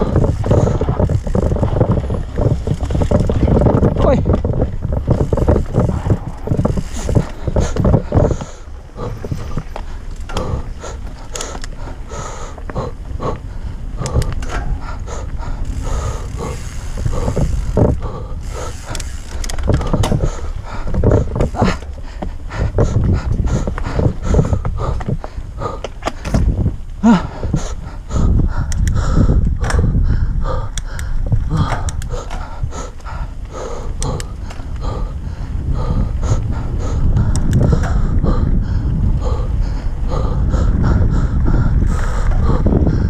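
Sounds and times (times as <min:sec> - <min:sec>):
tyres rumbling on dirt: 0:00.0 - 0:28.4
bike chain and frame clatter: 0:00.0 - 0:43.0
wind buffeting microphone: 0:00.0 - 0:43.0.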